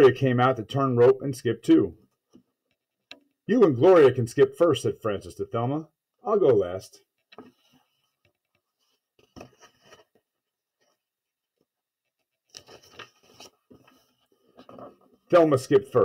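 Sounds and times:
paper rustling as page turns: 0:07.3 - 0:10.2, 0:12.2 - 0:15.0.

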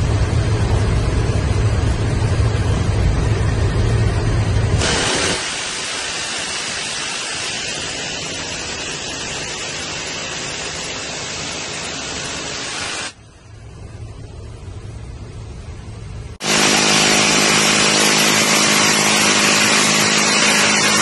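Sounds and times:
helicopter engine and rotor drone: 0:00.0 - 0:21.0
rotary machine gun firing: 0:04.7 - 0:13.2, 0:16.4 - 0:21.0.

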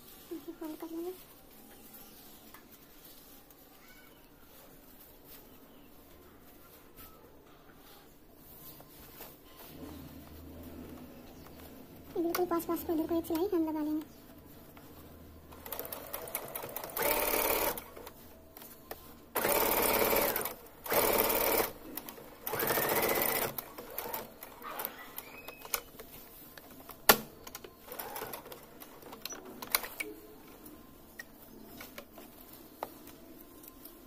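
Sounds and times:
sewing machine running: 0:15.6 - 0:18.0, 0:19.4 - 0:21.8, 0:22.4 - 0:25.3, 0:27.9 - 0:28.6.

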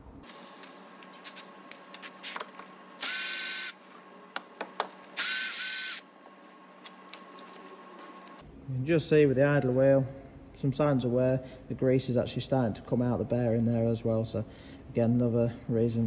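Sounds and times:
cordless ratchet motor whine: 0:01.9 - 0:03.8, 0:05.2 - 0:06.1.

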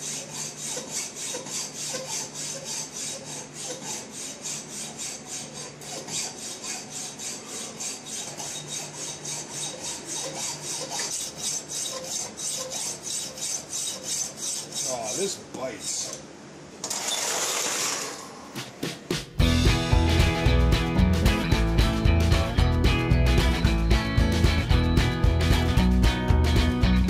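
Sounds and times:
hacksaw blade rasping: 0:00.0 - 0:16.2.

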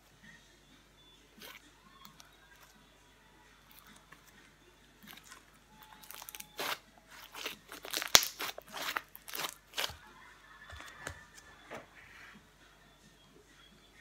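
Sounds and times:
slime crackling and popping: 0:05.1 - 0:10.0
sharp slime snap: 0:06.2 - 0:09.9.

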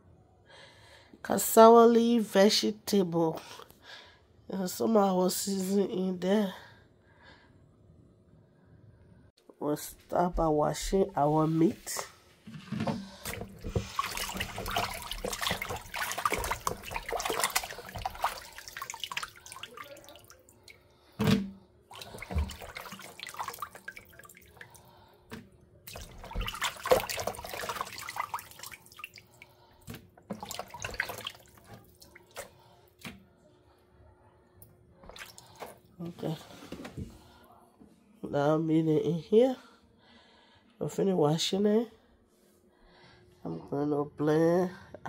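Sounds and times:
water sloshing in a plastic bowl: 0:11.5 - 0:33.3, 0:35.0 - 0:37.0
water dripping: 0:13.3 - 0:20.8, 0:21.9 - 0:24.9, 0:25.9 - 0:32.5.

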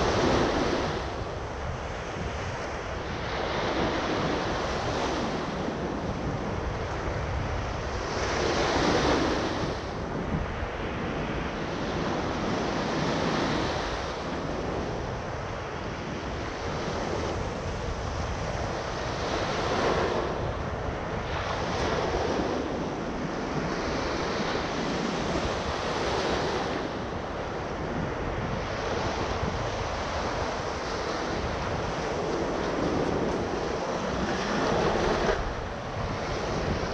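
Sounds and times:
wind rumble on microphone: 0:00.0 - 0:36.9
surf breaking on sand beach: 0:16.5 - 0:36.9.

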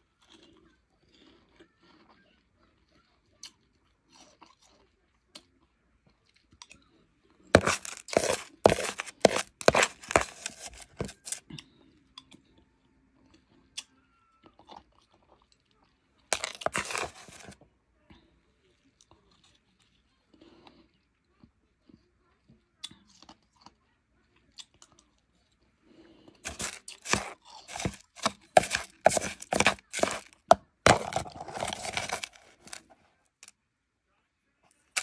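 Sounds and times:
ice being chewed: 0:00.0 - 0:06.8, 0:07.5 - 0:12.4, 0:14.5 - 0:17.6, 0:26.3 - 0:33.0.

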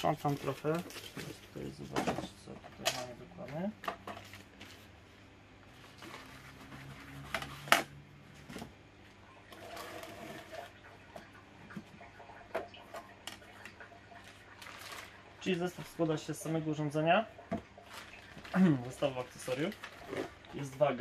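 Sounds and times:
packaging rustling: 0:00.0 - 0:01.7, 0:14.2 - 0:15.2, 0:17.8 - 0:20.8.

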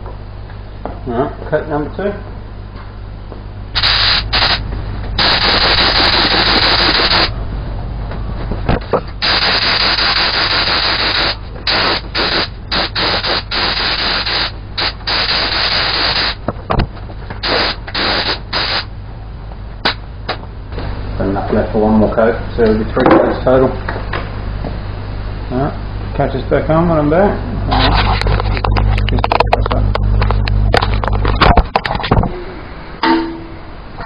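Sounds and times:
spray gun hissing: 0:03.8 - 0:04.6, 0:05.2 - 0:07.3, 0:09.2 - 0:16.4, 0:17.4 - 0:18.9.

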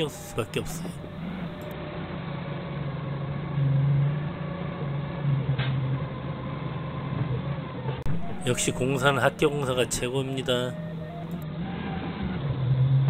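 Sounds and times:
forklift engine running: 0:00.0 - 0:03.3.

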